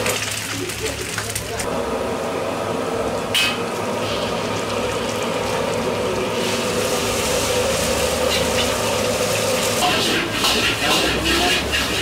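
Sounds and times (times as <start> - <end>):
food sizzling in a wok: 3.4 - 12.0.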